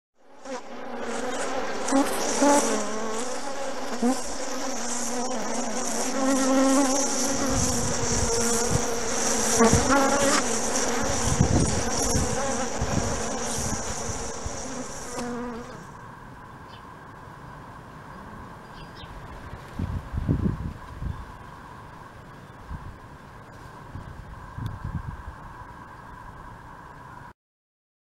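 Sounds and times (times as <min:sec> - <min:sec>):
bees buzzing: 0:00.2 - 0:16.2
high-pitched hiss: 0:01.2 - 0:16.1.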